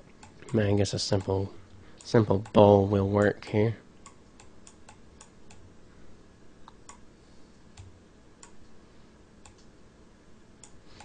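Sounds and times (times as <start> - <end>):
computer mouse clicking: 0.2 - 0.6, 4.0 - 5.6, 6.6 - 7.0, 9.4 - 9.7, 10.6 - 11.0.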